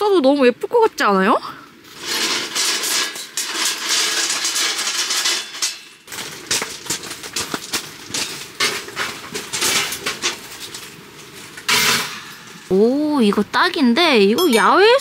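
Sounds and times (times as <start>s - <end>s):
gravel crunching: 1.8s - 12.9s
metal heater knocks and clinks: 2.0s - 12.7s, 14.4s - 15.0s.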